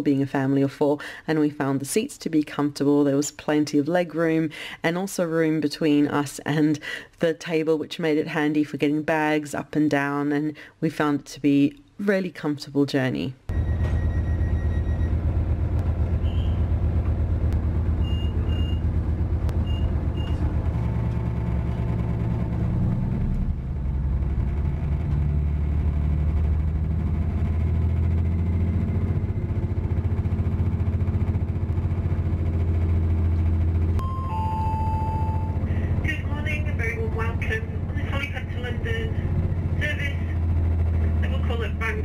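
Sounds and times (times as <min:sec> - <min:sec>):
diesel train engine drone: 0:13.5 - 0:42.0
falling two-note chime: 0:34.0 - 0:35.6
short high beeps: 0:34.0 - 0:35.7.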